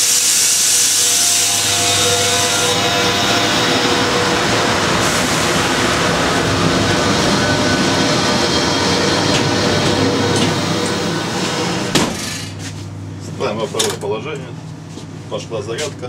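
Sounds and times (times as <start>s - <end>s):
strong hiss: 0.0s - 8.0s
locomotive machinery noise: 0.0s - 14.2s.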